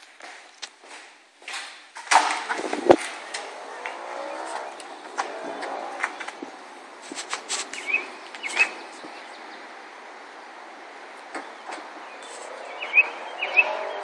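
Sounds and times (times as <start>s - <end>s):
outdoor background hiss: 0.0s - 14.0s
short rising bird chirps: 7.7s - 9.3s, 11.6s - 14.0s.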